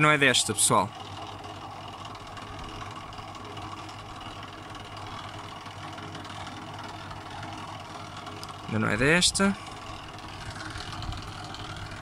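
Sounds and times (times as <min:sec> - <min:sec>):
washing machine drain pump humming: 0:00.0 - 0:12.0.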